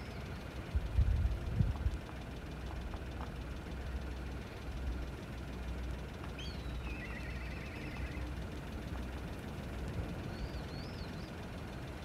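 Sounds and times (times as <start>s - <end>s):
low engine rumble: 0.0s - 12.0s
bird whistle and trill: 6.4s - 8.3s, 10.2s - 11.4s.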